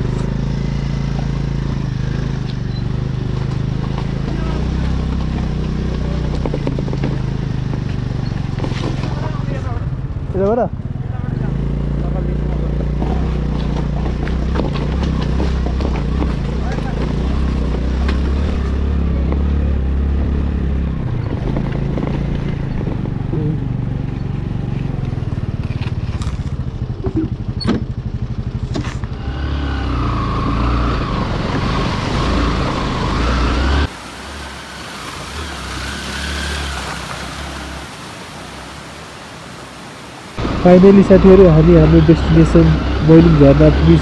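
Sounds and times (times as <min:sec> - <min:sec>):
scooter engine running: 0:00.0 - 0:33.9.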